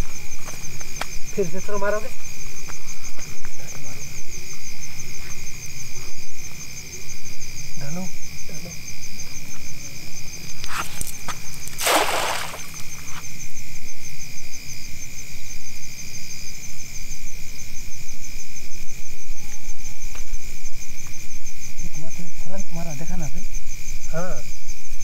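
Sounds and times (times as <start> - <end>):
crickets trilling: 0.0 - 25.0
cast net splashing into water: 10.9 - 13.1.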